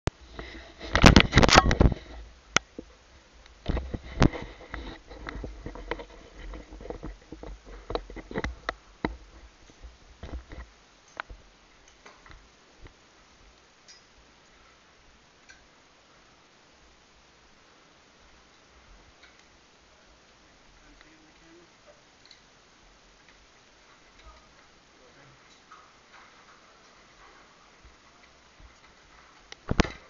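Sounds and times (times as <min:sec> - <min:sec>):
rustling close to microphone: 0:00.1 - 0:11.5, 0:23.0 - 0:30.0
sharp clicks and knocks: 0:00.8 - 0:13.0.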